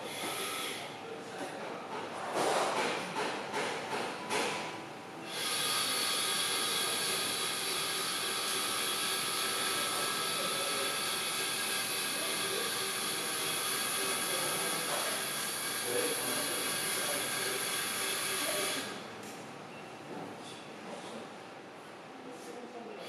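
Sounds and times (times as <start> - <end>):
high-pitched motor whine: 5.2 - 19.0.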